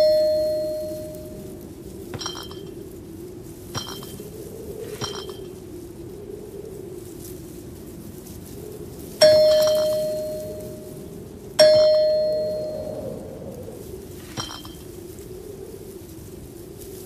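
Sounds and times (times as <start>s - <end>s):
bell-like ding: 0.0s - 1.4s, 9.2s - 10.8s, 11.6s - 13.0s
steady low hum: 0.0s - 6.3s, 9.2s - 15.7s.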